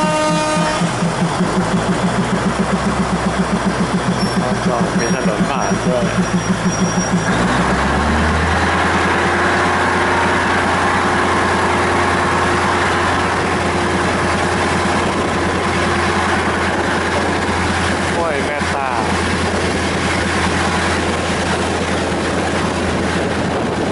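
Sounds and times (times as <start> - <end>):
diesel train engine idling: 0.0 - 23.9.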